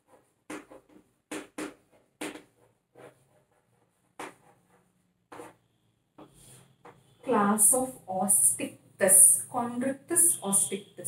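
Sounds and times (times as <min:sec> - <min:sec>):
chalk writing on chalkboard: 0:00.0 - 0:07.6.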